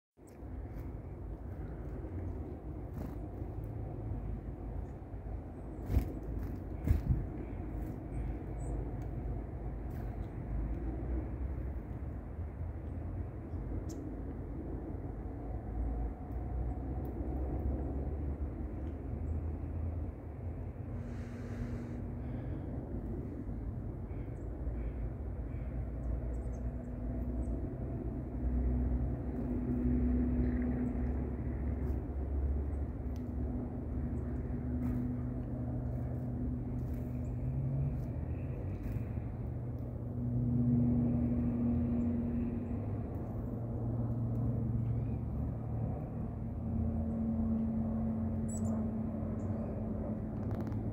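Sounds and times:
droning hum: 0.2s - 50.9s
low engine rumble: 0.2s - 50.9s
faint high bird chirps: 48.5s - 48.8s.

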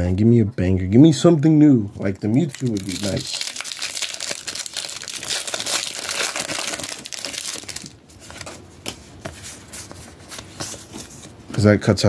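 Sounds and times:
foil wrapper crinkling: 2.0s - 8.5s
cards rustling and clicking: 2.0s - 11.7s.

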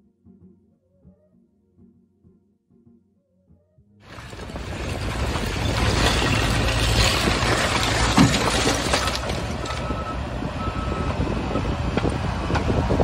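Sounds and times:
diesel engine running under load: 4.0s - 13.0s
metal clank: 4.1s - 9.8s.

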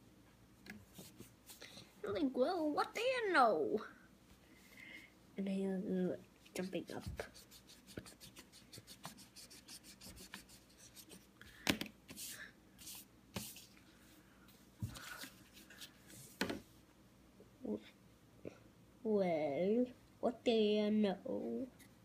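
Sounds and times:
hand rubbing on paper: 6.6s - 11.4s, 12.1s - 14.2s.

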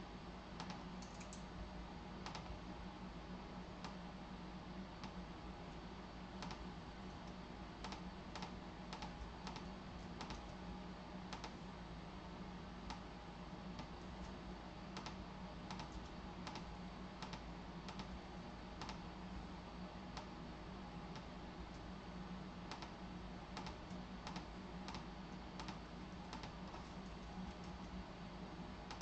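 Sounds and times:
steady low hum: 0.0s - 29.0s
keyboard typing clicks: 0.6s - 1.4s, 6.4s - 6.6s, 7.8s - 10.5s, 15.0s - 18.1s, 23.6s - 27.9s.

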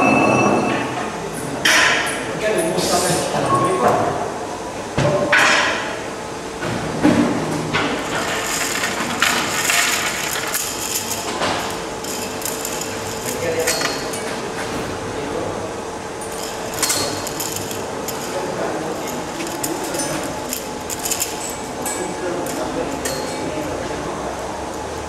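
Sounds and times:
steady hum: 5.7s - 25.0s
knocks and clinks: 8.1s - 14.4s, 16.2s - 23.5s.

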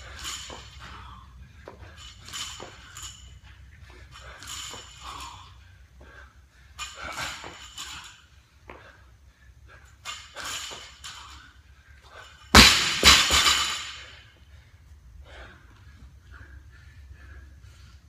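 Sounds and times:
barbell crashing on rubber floor: 12.5s - 14.2s.

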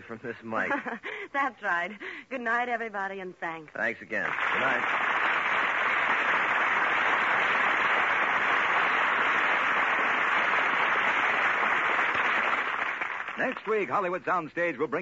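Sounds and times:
studio audience applauding: 4.2s - 14.0s.

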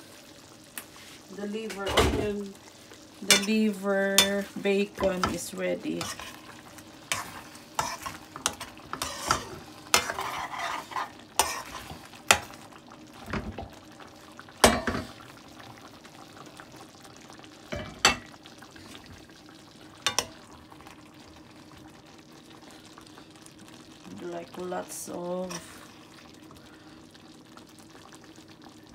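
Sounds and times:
metal utensil scraping a frying pan: 4.2s - 6.5s, 7.1s - 12.5s.

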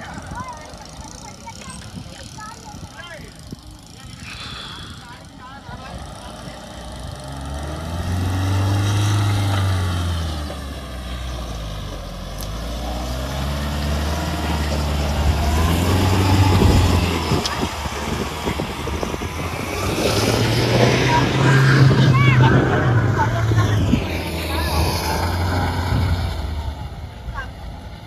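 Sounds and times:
vehicle engine revving: 3.8s - 28.0s
tyres crackling through mud: 5.8s - 26.8s.

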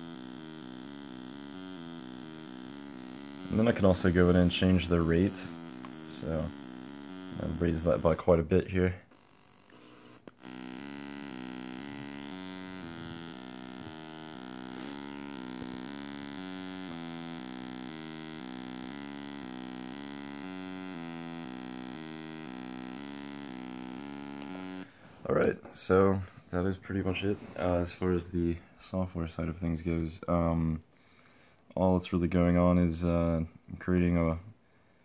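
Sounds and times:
buzzy synth tone sequence: 0.0s - 25.0s.

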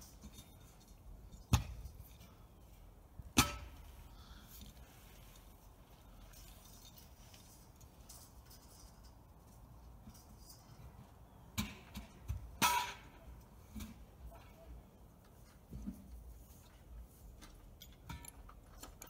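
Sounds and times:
sharp metallic clinks and knocks: 6.2s - 13.0s, 17.4s - 19.0s.

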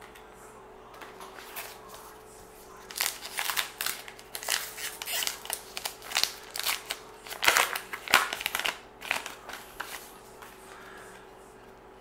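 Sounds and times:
wrapper tearing and crinkling: 2.9s - 10.0s.

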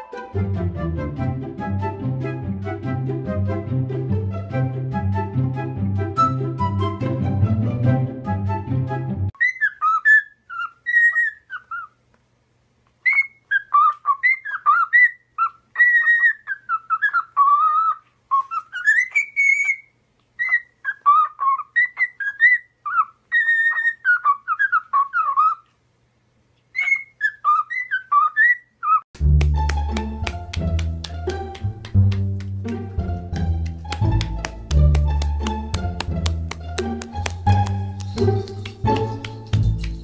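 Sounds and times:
bird whistling a melody: 5.6s - 7.0s, 9.4s - 11.9s, 13.1s - 15.2s, 15.8s - 25.6s, 26.8s - 29.0s.

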